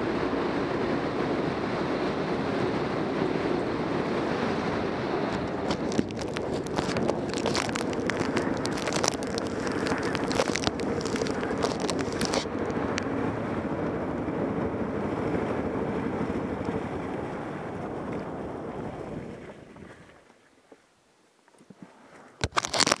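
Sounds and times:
motorcycle running: 0.0 - 19.4
wind on microphone: 0.0 - 20.2
crackle of sharp clicks: 5.3 - 13.1, 22.4 - 23.0.

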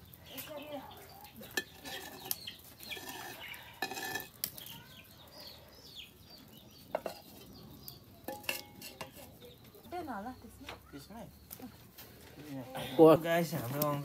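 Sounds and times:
chickens calling: 0.0 - 13.2
ladle scraping a metal pot: 1.5 - 4.6, 6.9 - 7.5, 8.2 - 9.4.

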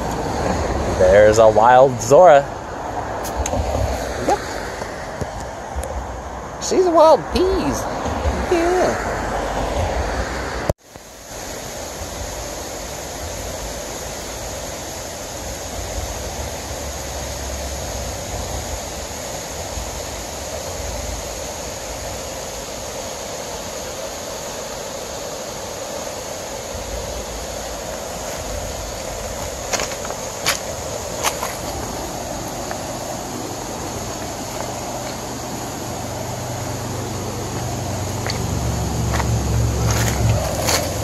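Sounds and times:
river flowing over stones: 0.0 - 41.0.

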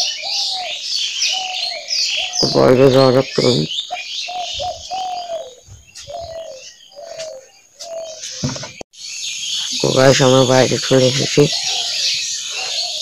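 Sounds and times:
small birds chirping: 0.0 - 13.0
brief knock: 8.4 - 8.8
bird repeating clear call: 9.4 - 13.0.

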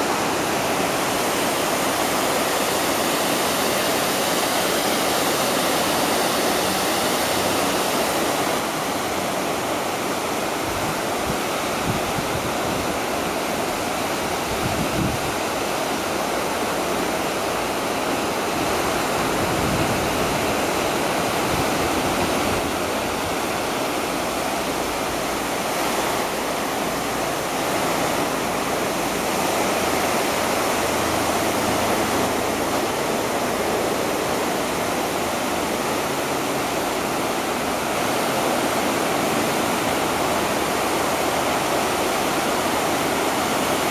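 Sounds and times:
waterfall rushing into basin: 0.0 - 43.9.

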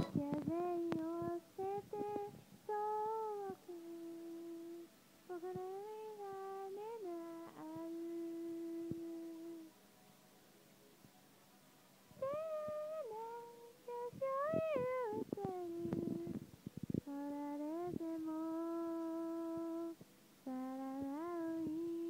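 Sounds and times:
woman humming softly: 0.0 - 9.7, 12.2 - 22.0.

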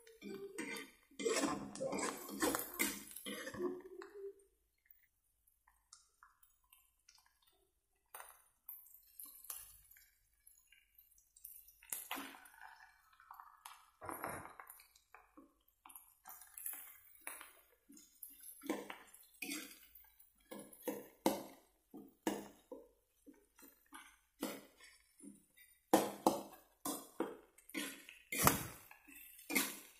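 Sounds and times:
metal spatula scraping a wok: 0.1 - 3.2.

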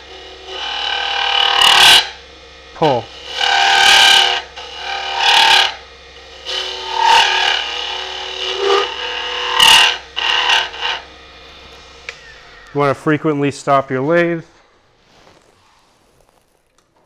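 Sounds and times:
chisel scraping wood on lathe: 0.0 - 2.2, 2.8 - 12.6
wood lathe running: 0.0 - 14.4.

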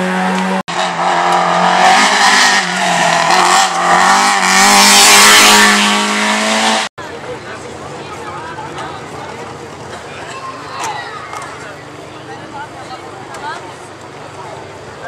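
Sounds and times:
rally car engine revving past: 0.0 - 6.9.

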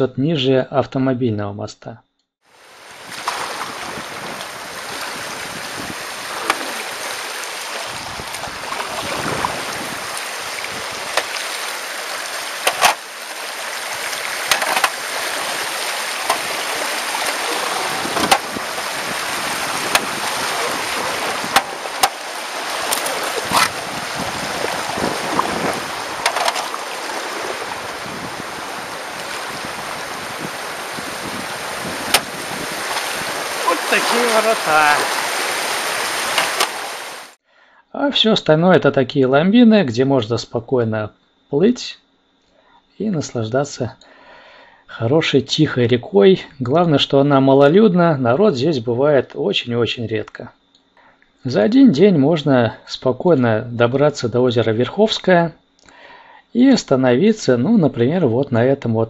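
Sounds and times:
water rushing over rocks: 2.6 - 37.4.

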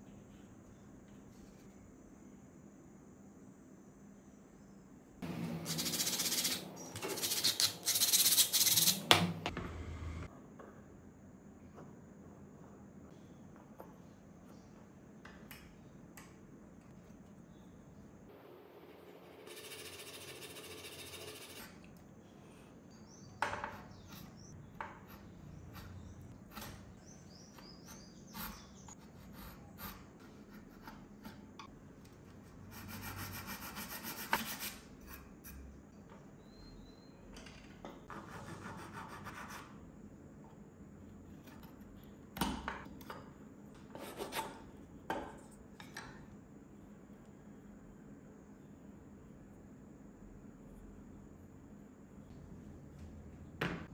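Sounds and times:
chisel and file scraping wood: 43.9 - 44.6.

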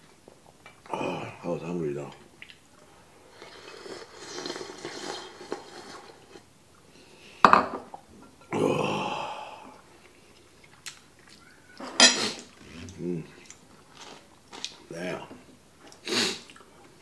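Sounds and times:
slurping soup: 3.2 - 6.5, 12.1 - 14.7.

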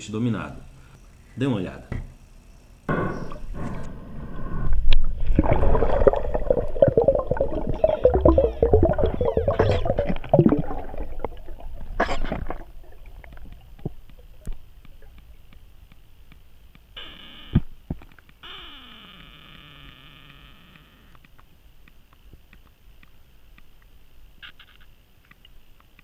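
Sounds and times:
steady tones: 2.9 - 15.7
quiet underwater crackling: 2.9 - 26.0
loud underwater water noise: 3.0 - 14.8.

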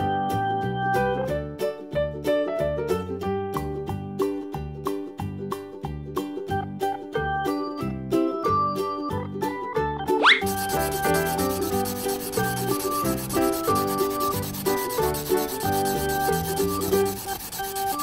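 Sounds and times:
light background music: 0.0 - 18.0
marker rubbing over paper: 10.3 - 18.0.

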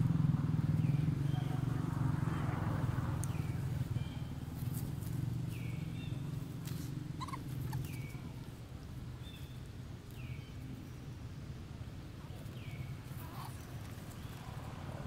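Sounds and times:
high-pitched animal calls: 7.2 - 8.2.

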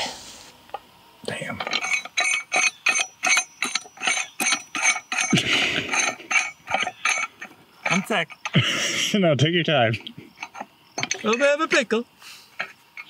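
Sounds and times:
pipe wrench metallic clicks: 1.6 - 8.6, 10.0 - 11.5.

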